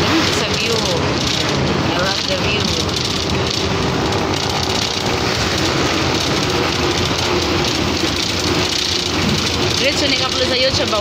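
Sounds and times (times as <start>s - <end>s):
vehicle engine and road noise: 0.0s - 11.0s.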